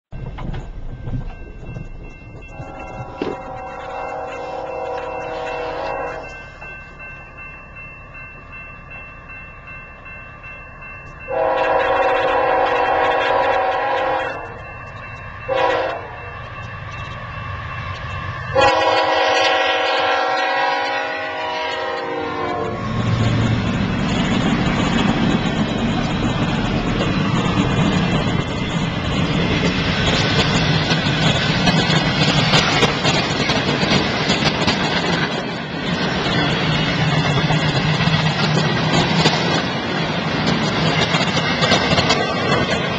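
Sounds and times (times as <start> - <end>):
freight cars rolling on rails: 0.1 - 42.9
locomotive engine rumbling: 0.1 - 42.9
locomotive air horn blasts: 2.5 - 6.4, 11.3 - 14.6, 15.5 - 16.3, 18.5 - 22.8.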